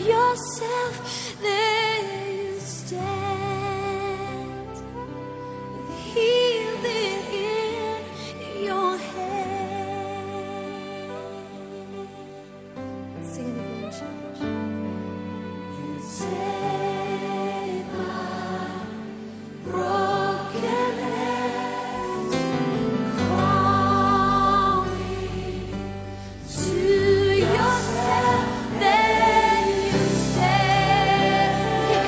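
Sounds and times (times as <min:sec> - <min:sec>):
choir singing a hymn: 0:05.8 - 0:12.5, 0:15.0 - 0:32.0.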